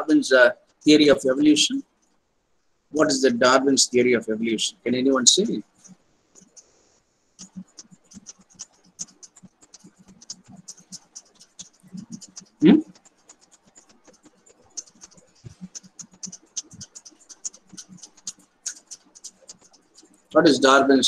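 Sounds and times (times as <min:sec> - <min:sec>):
light clicking and scratching: 0:00.0 - 0:02.2, 0:03.0 - 0:21.0.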